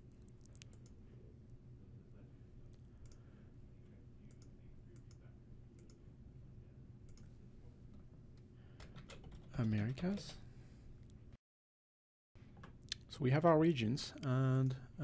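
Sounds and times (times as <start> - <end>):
low room hum: 0.0 - 11.4, 12.4 - 15.0
computer mouse clicks: 0.2 - 1.0, 5.8 - 6.0, 7.1 - 7.3.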